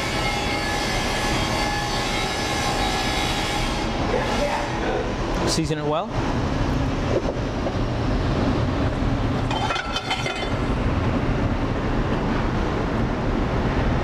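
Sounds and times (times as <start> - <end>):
kitchen ventilation rumble: 0.0 - 14.0
metallic clinking: 9.5 - 10.7.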